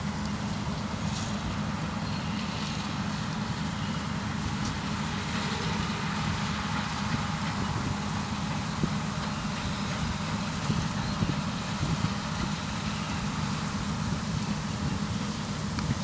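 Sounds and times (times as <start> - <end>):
combine harvester running: 0.0 - 16.0.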